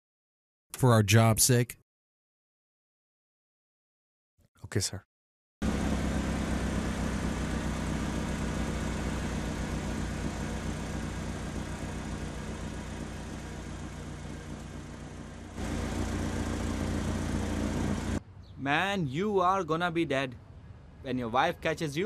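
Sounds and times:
vehicle engine humming: 0:05.6 - 0:18.3.

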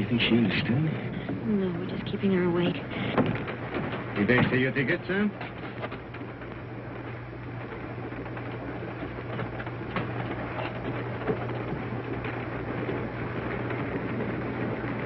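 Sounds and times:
train rumble and rattle: 0:00.0 - 0:15.0.

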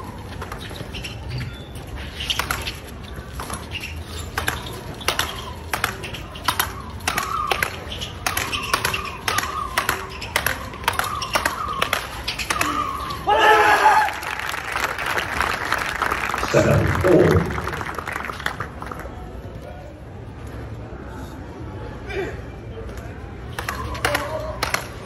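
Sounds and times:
rackets hitting ball: 0:02.0 - 0:13.3, 0:23.5 - 0:25.0.

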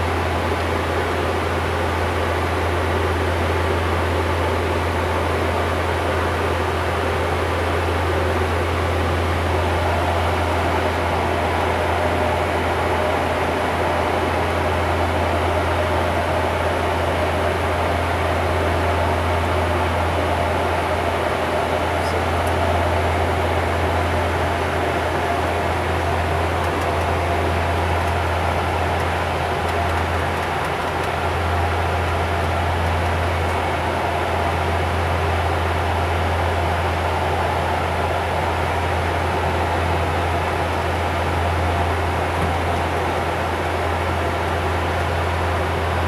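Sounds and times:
propeller drone: 0:00.0 - 0:46.0
rush of airflow and ventilation: 0:00.0 - 0:46.0.

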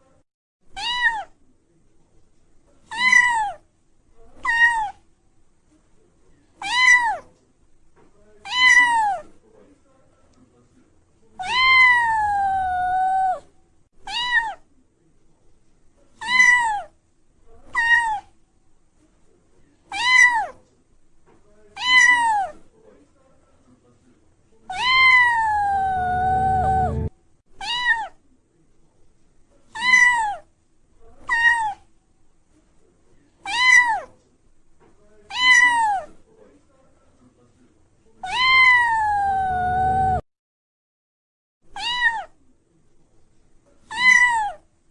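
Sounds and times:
kitten meowing: 0:00.8 - 0:01.3, 0:02.9 - 0:03.6, 0:06.6 - 0:07.2, 0:08.5 - 0:09.2, 0:11.4 - 0:13.4, 0:14.1 - 0:14.6, 0:24.7 - 0:28.1, 0:33.5 - 0:34.0, 0:35.3 - 0:36.1, 0:38.2 - 0:40.2, 0:41.8 - 0:42.3, 0:43.9 - 0:44.6.

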